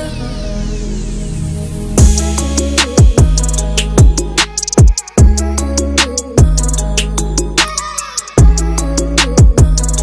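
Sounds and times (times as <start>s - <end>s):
sustained low bass: 1.8s - 4.4s
kick drum strikes: 4.8s - 5.4s.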